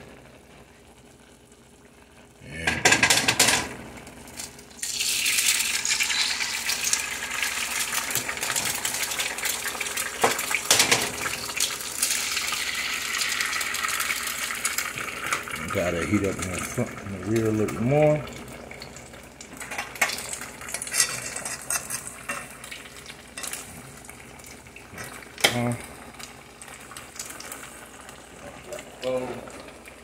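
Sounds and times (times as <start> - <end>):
pots and pans clattering: 2.7 - 3.8, 10.2 - 11.6, 19.6 - 22.6.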